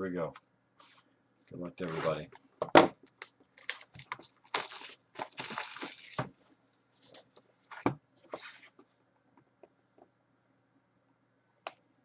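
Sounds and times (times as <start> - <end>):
plastic wrap crinkling and tearing: 3.2 - 6.3.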